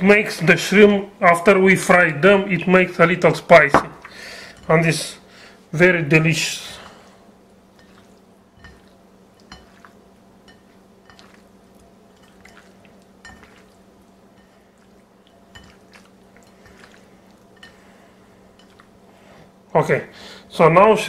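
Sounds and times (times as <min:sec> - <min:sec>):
steady low hum: 0:00.0 - 0:21.0
wet squelches of hand mixing: 0:06.4 - 0:19.4.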